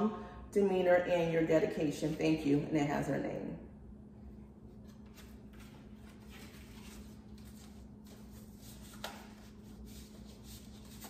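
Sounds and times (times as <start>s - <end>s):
steady low hum: 0.0s - 11.0s
paper card rustling: 4.8s - 11.0s.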